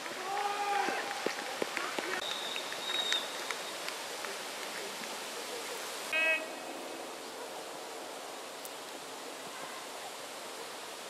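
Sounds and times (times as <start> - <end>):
outdoor noise: 0.0 - 11.0
referee whistle blast: 6.2 - 6.5.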